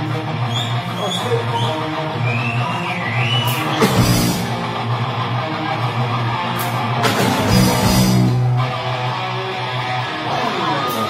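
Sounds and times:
heavy metal band playing live: 0.0 - 2.2, 3.4 - 11.0.

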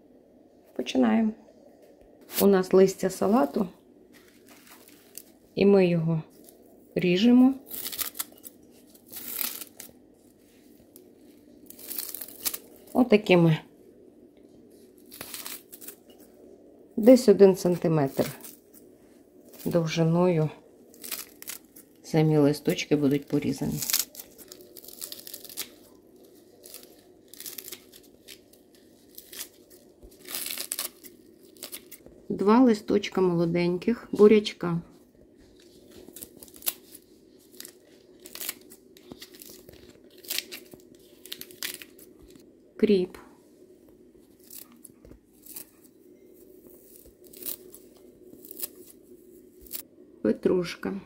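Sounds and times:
faint steady hum: 0.0 - 51.0
scissors snipping lettuce: 23.1 - 26.0, 26.6 - 32.0, 36.0 - 42.0.

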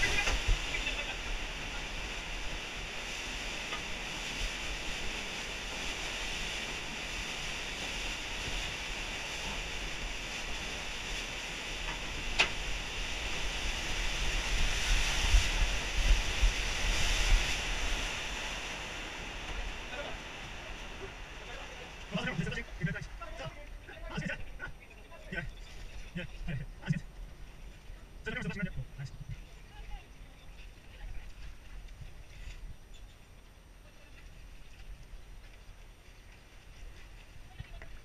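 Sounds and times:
river water rushing: 0.0 - 24.6
wind rumble on microphone: 0.0 - 38.0.

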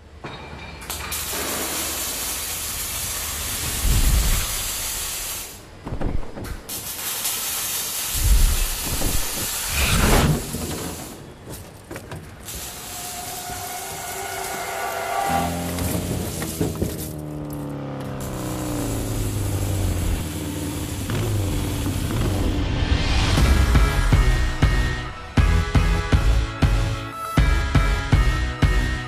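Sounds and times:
loud steady hissing: 0.9 - 17.2, 18.1 - 25.5
deep thuds: 5.8 - 6.7.

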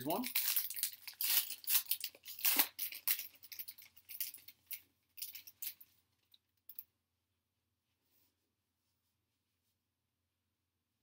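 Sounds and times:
foil wrapper crinkling: 0.0 - 4.8.

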